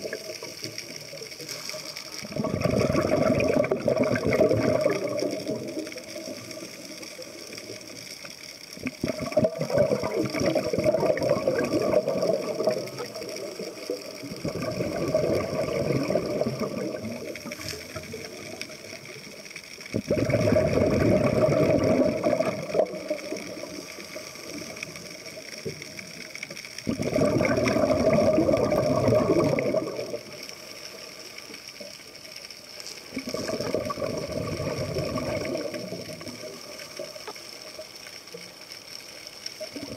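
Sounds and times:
underwater bubble bursts: 0.0s - 38.6s, 39.5s - 39.9s.

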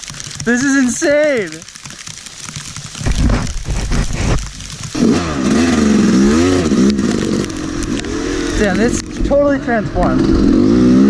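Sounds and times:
dirt bike engine revving: 4.9s - 11.0s.

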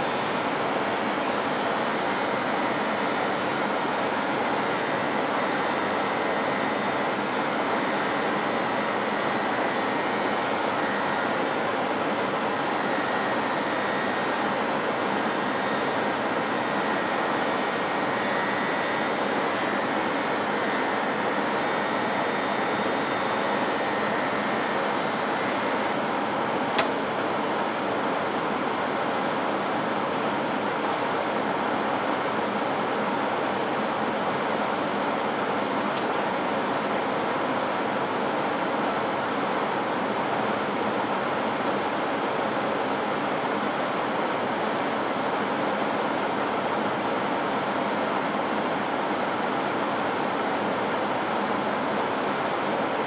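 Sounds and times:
electric hair clipper buzzing: 0.0s - 26.0s
sharp click: 26.7s - 27.3s, 36.0s - 36.2s.

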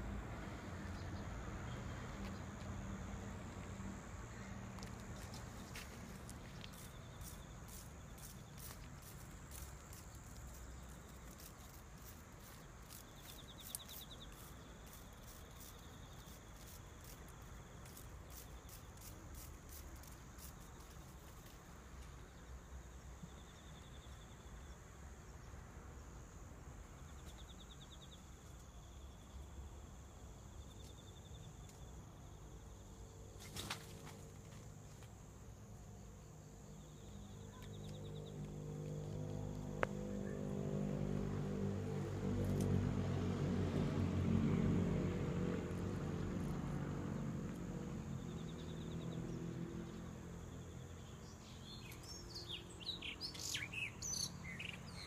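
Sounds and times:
high insect buzz: 3.7s - 22.3s, 46.0s - 55.0s
pulsed insect trills: 4.8s - 21.6s.

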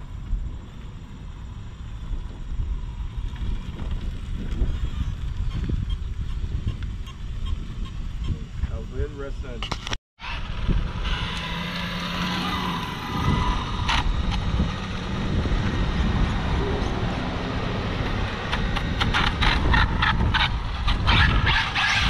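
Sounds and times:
electric motor and gears whining: 10.2s - 22.0s.

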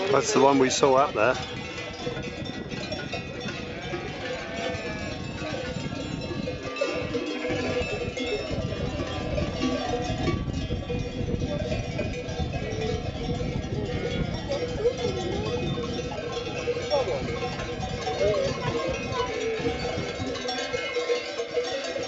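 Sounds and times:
sheep bells clanking: 0.0s - 22.0s
sheep bleating: 3.5s - 5.5s.

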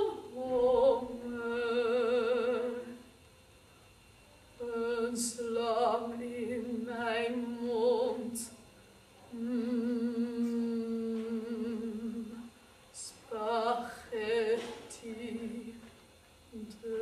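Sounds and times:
woman singing operatically: 0.0s - 3.0s, 4.6s - 8.5s, 9.4s - 12.4s, 13.0s - 15.8s, 16.6s - 17.0s.

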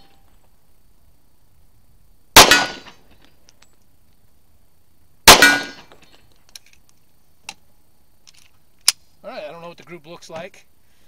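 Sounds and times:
pistol shot: 2.4s - 3.0s, 5.2s - 6.0s.

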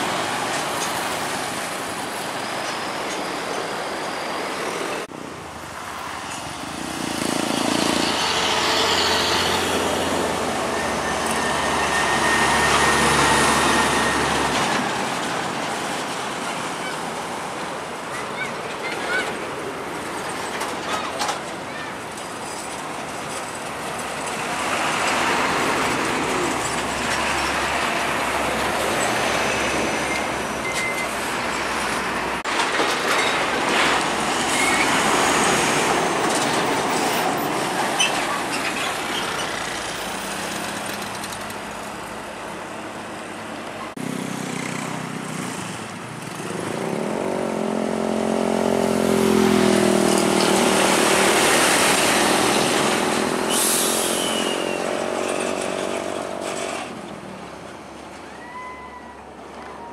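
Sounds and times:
diesel trucks driving: 0.0s - 59.9s
traffic noise: 0.0s - 59.9s
air brake hiss: 53.4s - 54.7s.

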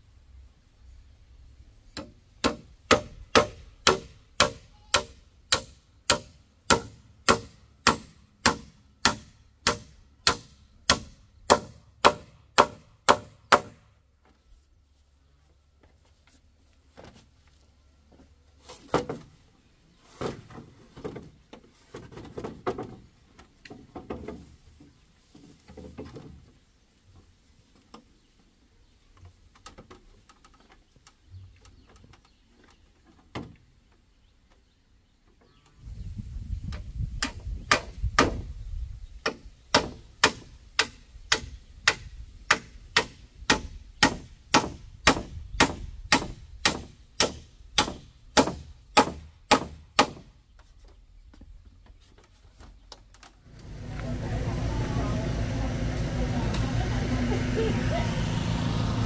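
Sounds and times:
knocks of wood being handled: 1.9s - 14.5s, 15.7s - 19.4s, 20.1s - 26.6s, 29.1s - 35.7s, 39.2s - 54.7s
hand tool striking wood: 2.0s - 13.9s, 36.7s - 38.5s, 39.2s - 50.4s.

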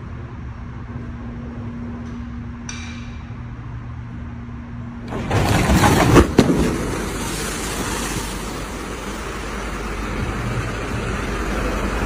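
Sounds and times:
water and wind rushing: 5.1s - 12.0s.

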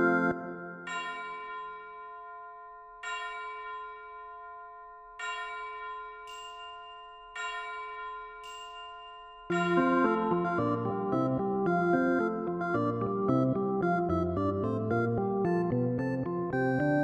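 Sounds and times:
background music: 0.0s - 1.0s, 9.5s - 17.0s
bell-like chime: 0.0s - 12.7s.

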